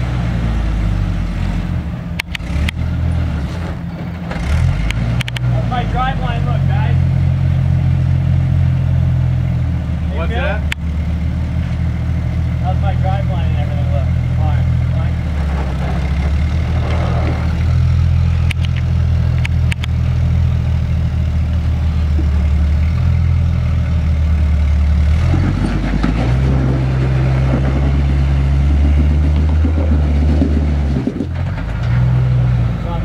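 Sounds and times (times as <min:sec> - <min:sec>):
off-road engine running: 0:00.0 - 0:33.0
sharp clicks: 0:04.9 - 0:05.5, 0:18.4 - 0:20.0.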